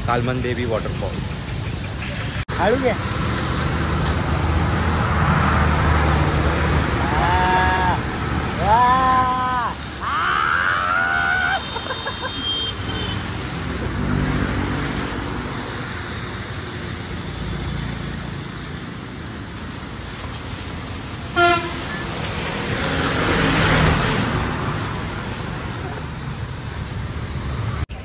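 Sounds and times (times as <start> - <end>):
vehicle passing: 2.0 - 10.0, 21.8 - 27.8
vehicle horn honk: 21.4 - 22.0.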